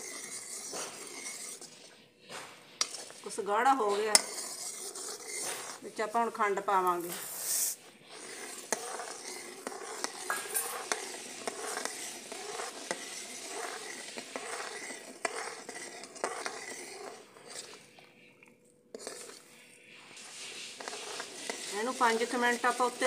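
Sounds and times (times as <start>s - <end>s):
ladle clinking and scraping pan: 0.0s - 6.1s, 6.8s - 18.0s, 18.9s - 23.0s.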